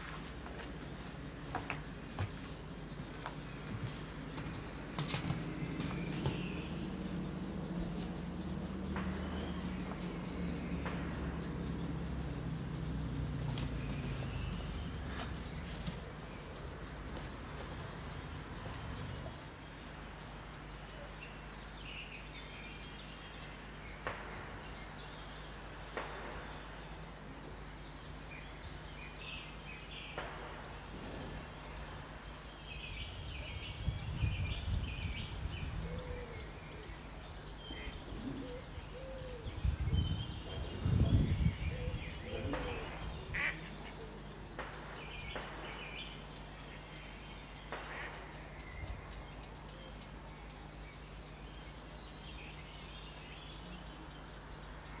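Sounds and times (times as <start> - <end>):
high insect chirping: 0.0 - 55.0
low rumbles: 2.6 - 20.1.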